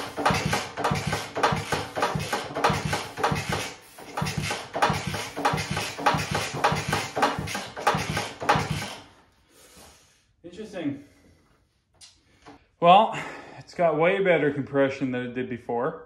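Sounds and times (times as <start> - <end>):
air puffing from engine plug hole: 0.0 - 10.2.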